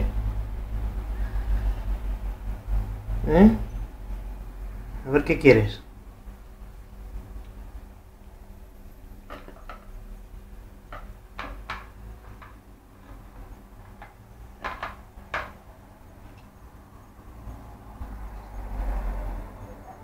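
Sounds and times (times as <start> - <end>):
plastic bowls clacking: 9.3 - 10.0, 10.9 - 15.6.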